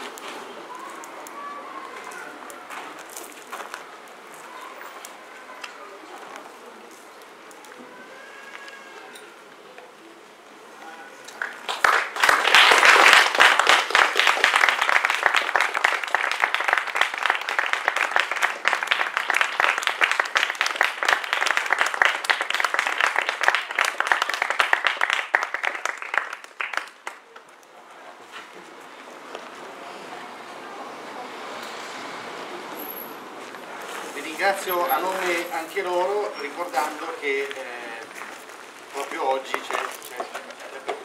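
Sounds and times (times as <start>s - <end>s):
audience applauding: 11.4s - 27.4s.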